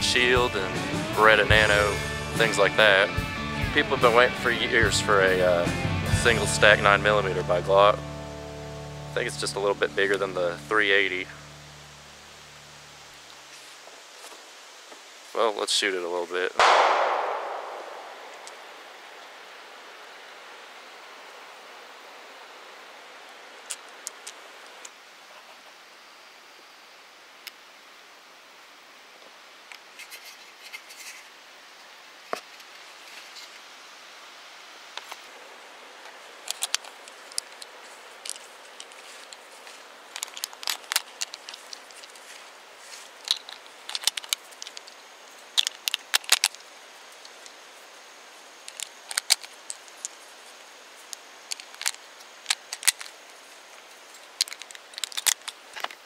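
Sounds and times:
rounds clicking into a magazine: 16.6 - 18.6, 36.5 - 39.4, 40.2 - 42.2, 43.2 - 45.0, 45.6 - 47.6, 48.6 - 50.2, 51.1 - 53.2, 54.3 - 56.0.

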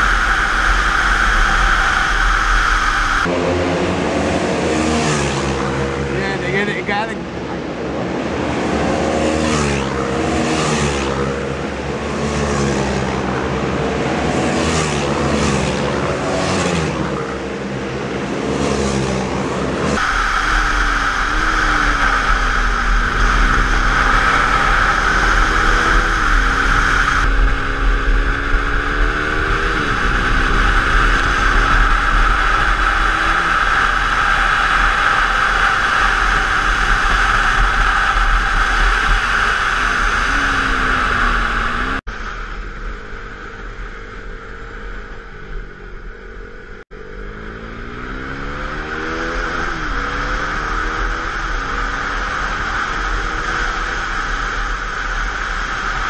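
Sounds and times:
heavy wind rush: 0.0 - 12.2, 12.8 - 44.1
motorcycle engine revving through upshifts: 0.0 - 42.1, 42.7 - 56.0
motorcycles passing at speed: 0.0 - 56.0.

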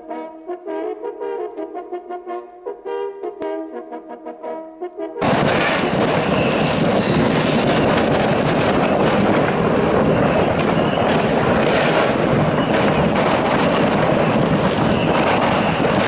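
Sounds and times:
firecrackers crackling: 5.2 - 16.0
firework whistles: 5.2 - 16.0.

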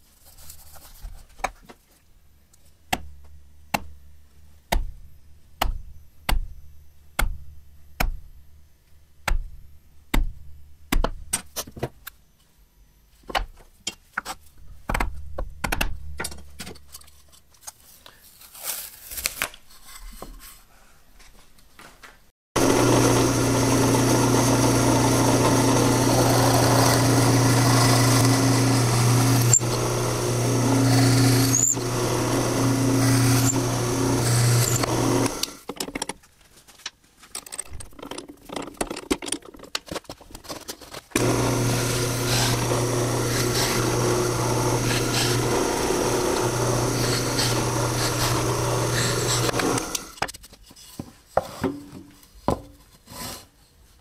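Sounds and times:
drill press motor humming: 22.6 - 35.6, 41.2 - 50.2.

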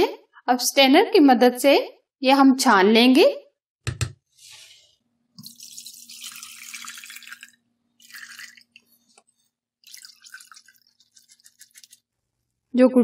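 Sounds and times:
liquid pouring into a bowl: 5.4 - 9.1, 9.8 - 12.2
liquid trickling through a strainer: 5.4 - 12.1.

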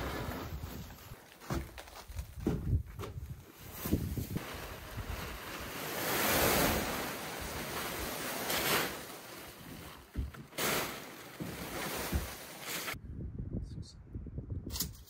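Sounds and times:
plastic tarp rustling: 0.0 - 2.5, 3.5 - 13.0.

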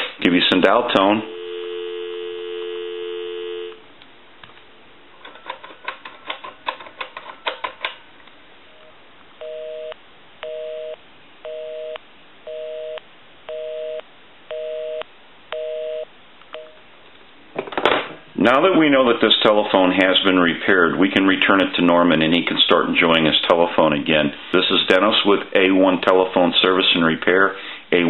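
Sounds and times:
telephone busy signal: 1.3 - 3.8, 9.4 - 16.8
telephone dial tone: 1.3 - 3.8.

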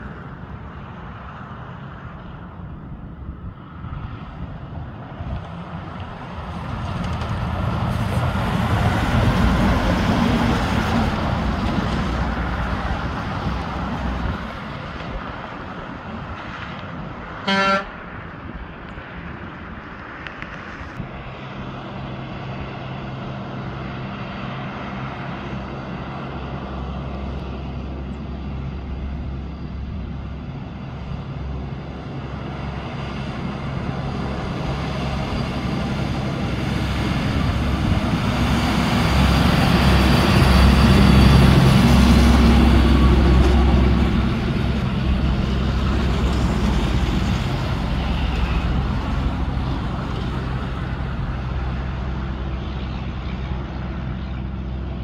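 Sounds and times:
diesel truck passing: 0.0 - 55.0
truck horn toot: 17.4 - 18.0
truck engine droning: 21.0 - 55.0.

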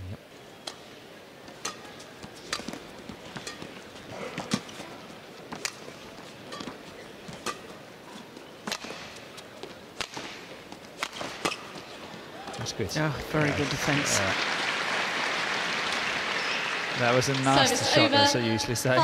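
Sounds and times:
rackets striking shuttlecock: 1.5 - 3.7.

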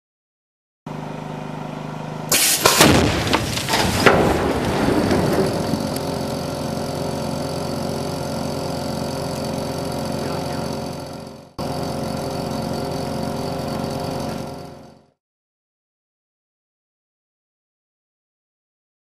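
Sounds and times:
engine running steadily: 0.9 - 15.2.

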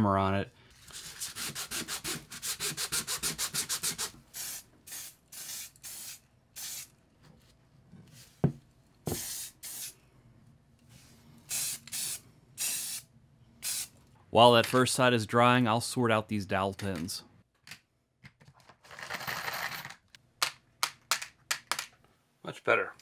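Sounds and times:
sandpaper rubbing on plastic: 0.9 - 4.2.

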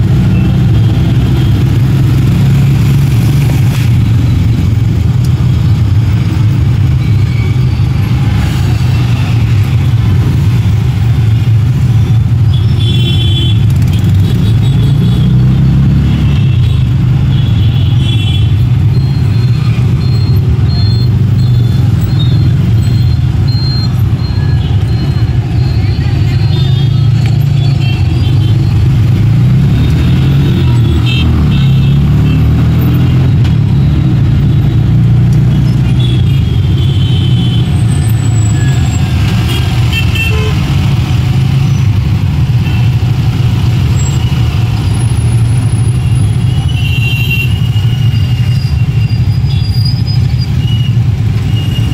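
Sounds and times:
traffic engine rumble: 0.0 - 51.9
vehicle horns tooting: 25.6 - 28.7, 35.6 - 40.9.

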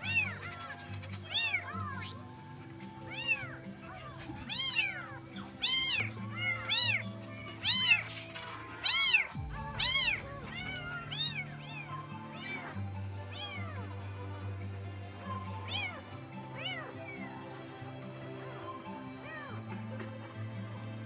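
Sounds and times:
kitten meowing: 0.0 - 2.2, 3.0 - 8.1, 8.8 - 13.9, 15.3 - 17.2.

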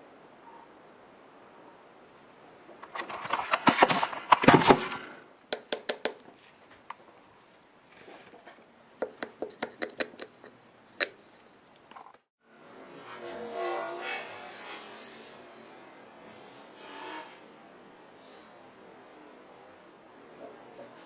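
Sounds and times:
scratching and clicking on paper: 2.8 - 5.0, 9.0 - 11.4.

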